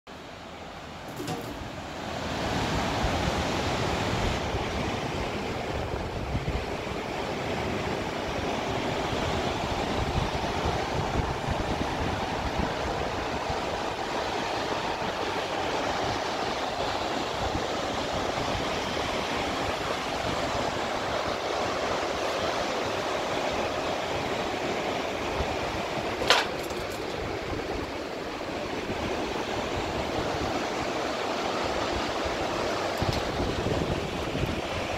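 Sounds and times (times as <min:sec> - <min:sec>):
river rushing over rapids: 0:06.9 - 0:34.9.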